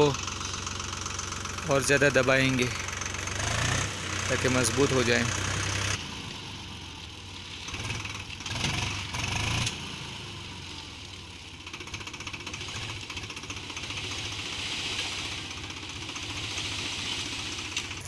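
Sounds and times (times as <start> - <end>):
tractor diesel engine: 0.0 - 18.0
earth sliding off trailer: 12.4 - 18.0.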